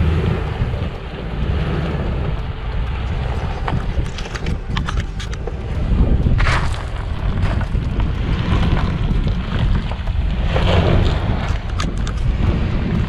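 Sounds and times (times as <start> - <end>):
vehicle engine low rumble: 0.0 - 13.0
wind buffeting microphone: 0.0 - 13.0
stones cracking under tyres: 3.0 - 13.0.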